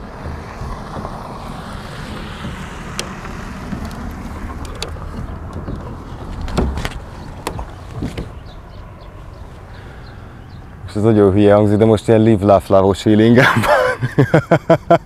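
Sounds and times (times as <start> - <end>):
knocks and thumps on steel ladder: 2.1 - 8.4.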